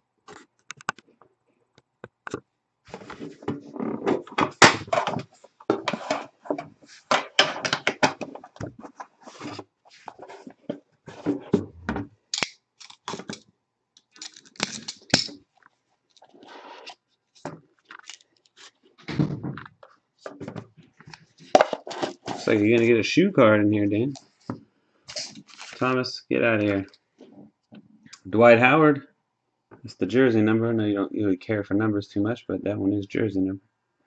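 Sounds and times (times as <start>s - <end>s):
cards knocking and scraping: 2.0s - 13.4s, 19.1s - 22.9s
packaging being opened: 12.4s - 13.4s, 14.0s - 15.2s, 17.9s - 18.7s, 25.1s - 25.9s
wrapper tearing: 12.4s - 13.4s, 14.2s - 15.2s, 17.9s - 18.7s, 25.1s - 25.8s.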